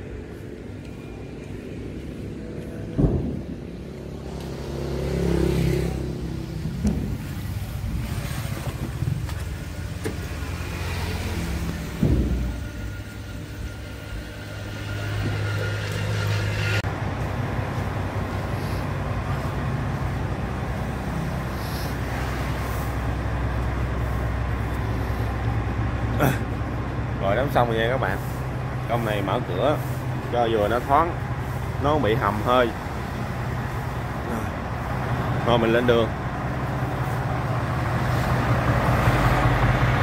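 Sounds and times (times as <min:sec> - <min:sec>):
diesel engine idling: 0:09.0 - 0:40.0.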